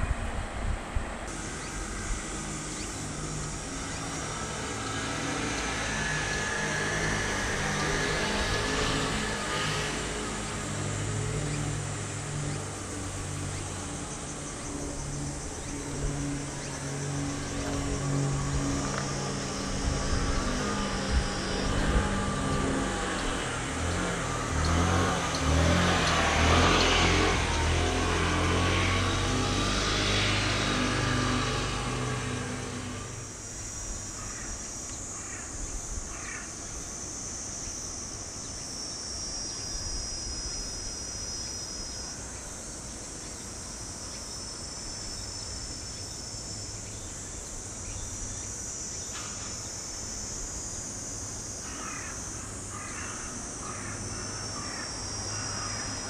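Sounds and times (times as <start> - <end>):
vehicle passing close by: 0.0 - 33.5
outdoor ambience: 0.0 - 56.0
crows cawing: 34.2 - 36.6, 51.7 - 56.0.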